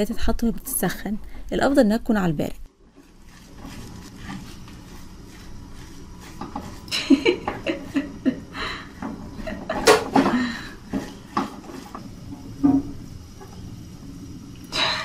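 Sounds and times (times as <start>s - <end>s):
spatula scraping frying pan: 2.9s - 8.0s, 10.9s - 12.0s.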